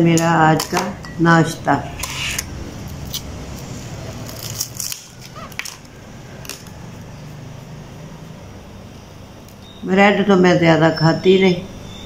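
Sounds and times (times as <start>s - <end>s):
rusks snapping and crackling: 2.2s - 7.1s.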